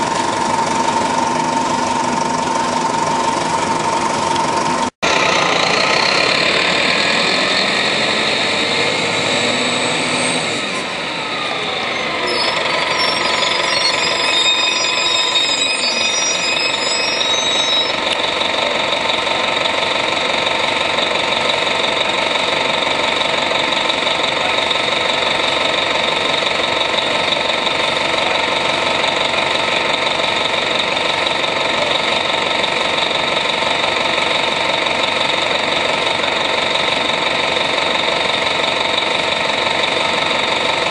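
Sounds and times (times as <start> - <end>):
steady whine: 0.0 - 18.3
bus engine drone: 0.0 - 40.9.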